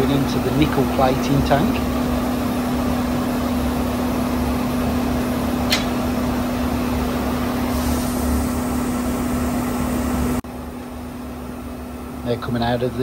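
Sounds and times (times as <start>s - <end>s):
machinery hum and rushing: 0.0s - 13.0s
sharp click: 5.7s - 6.0s.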